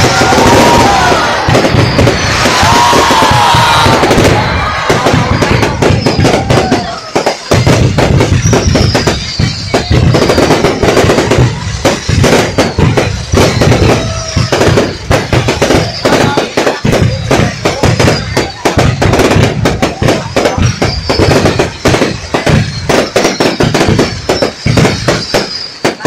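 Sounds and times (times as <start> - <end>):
firework bangs and crackles: 0.0 - 26.0.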